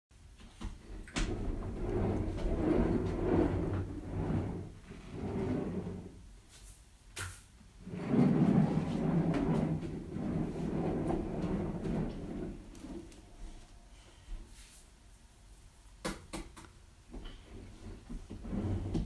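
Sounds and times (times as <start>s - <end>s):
casters rolling on hardwood floor: 0.6s - 6.2s, 7.8s - 13.7s, 17.1s - 19.0s.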